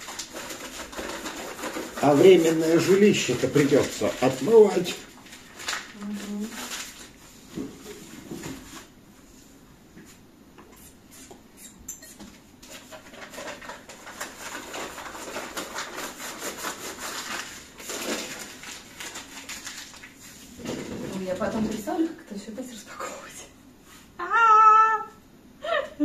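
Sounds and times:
kitchenware rustling and knocking: 7.5 - 8.8, 20.6 - 22.1.

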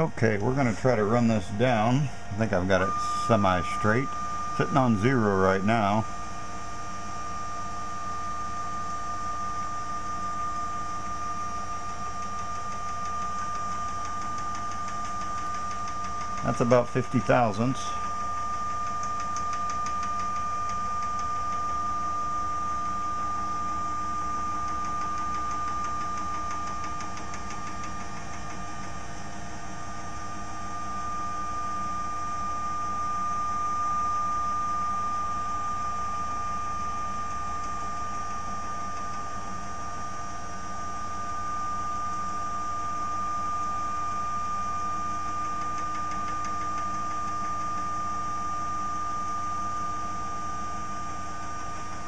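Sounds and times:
machine drive motors whining: 0.0 - 33.5.

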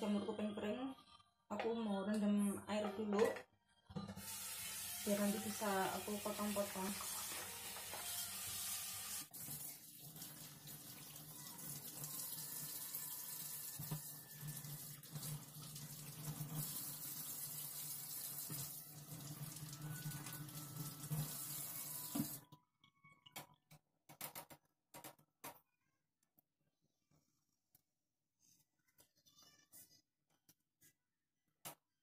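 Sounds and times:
tap water running into sink: 4.2 - 22.4.

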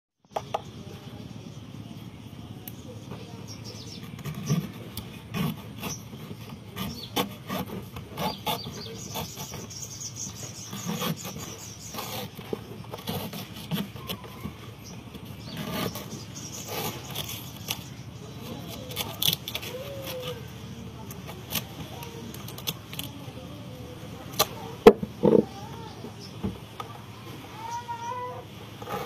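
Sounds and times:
knife cutting coconut husk: 2.6 - 23.5, 24.1 - 25.6, 28.8 - 29.0.

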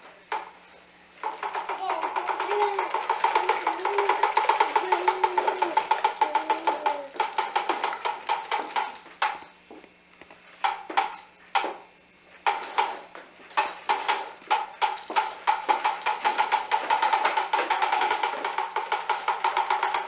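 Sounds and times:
toy truck wheels clicking: 1.2 - 9.4, 13.6 - 20.0.

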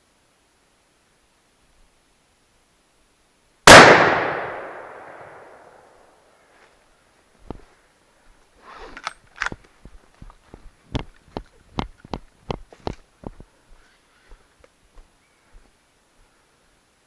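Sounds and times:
rifle shot echoing: 3.6 - 6.0
faint clicks and rustles: 6.5 - 16.3.

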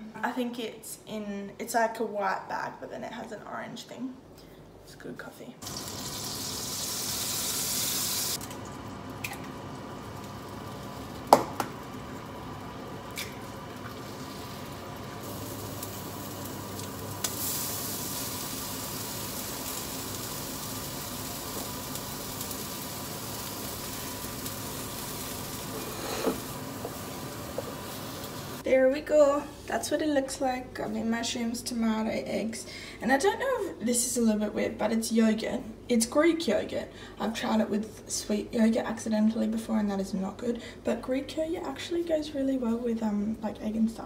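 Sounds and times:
food sizzling in a pan: 5.6 - 8.4, 9.6 - 28.6.

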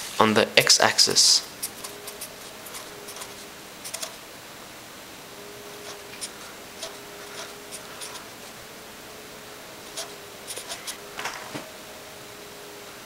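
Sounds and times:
steady hiss: 0.0 - 13.0
felt-tip pen scratching on paper: 1.6 - 4.2, 5.7 - 8.6, 9.8 - 11.0.

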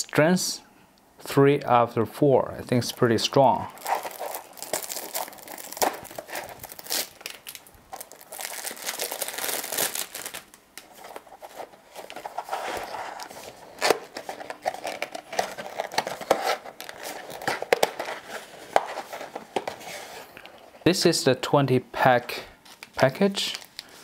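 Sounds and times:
cellophane crinkling and tearing: 3.7 - 20.1, 22.6 - 24.0.

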